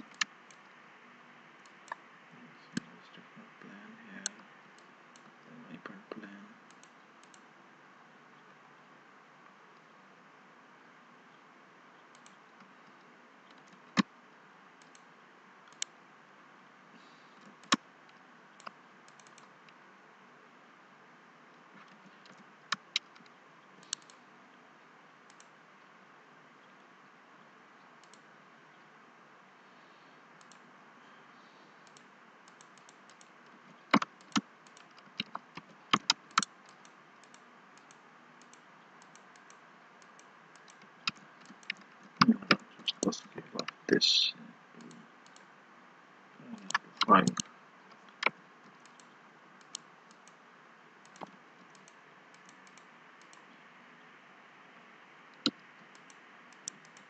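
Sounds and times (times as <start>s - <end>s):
mouse and keyboard clicks: 0.0s - 0.7s, 17.4s - 19.8s, 21.8s - 24.2s, 30.4s - 30.6s, 31.8s - 43.8s, 46.6s - 50.4s, 51.0s - 53.5s, 55.4s - 57.0s
faint steady hiss: 0.0s - 57.0s.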